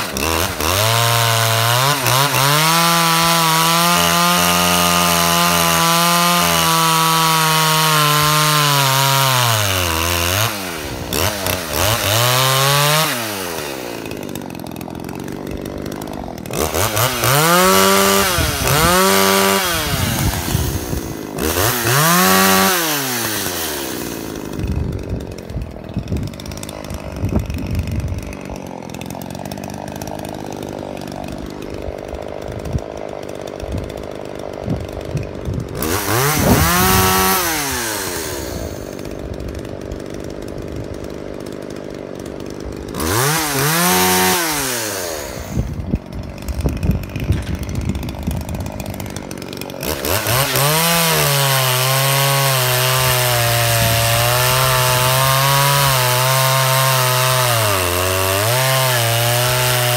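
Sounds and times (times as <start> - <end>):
chainsaw idling and revving: 0.0 - 59.9.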